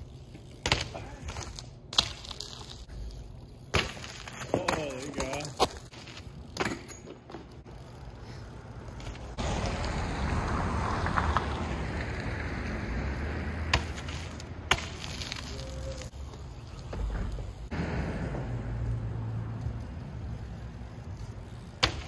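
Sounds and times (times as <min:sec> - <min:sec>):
bike tyres rolling on asphalt: 0:00.0 - 0:22.0
bike landing knocks: 0:00.6 - 0:02.7, 0:03.7 - 0:07.6, 0:21.7 - 0:22.0.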